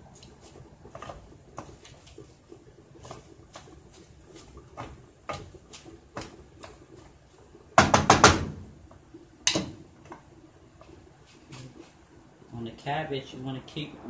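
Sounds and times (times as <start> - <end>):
wooden spoon stirring cabbage: 0.0 - 7.8
spoon knocking against pot: 9.4 - 9.8.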